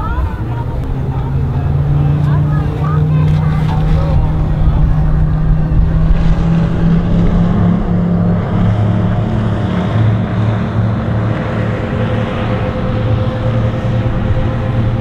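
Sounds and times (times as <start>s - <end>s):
motorboat engine droning: 0.0s - 15.0s.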